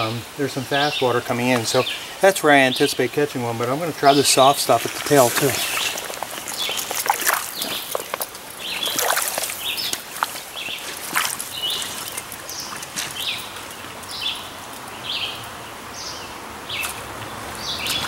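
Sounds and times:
shallow stream rushing: 0.0s - 18.0s
songbird calling: 0.0s - 18.0s
wading steps splashing: 0.5s - 14.9s.

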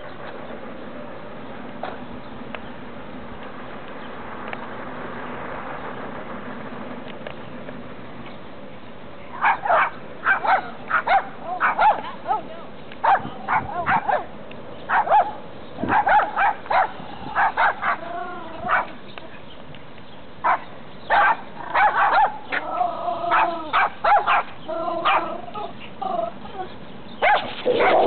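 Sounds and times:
dog barking and yipping: 9.4s - 14.3s, 14.9s - 19.0s, 20.4s - 25.8s, 27.2s - 28.0s.

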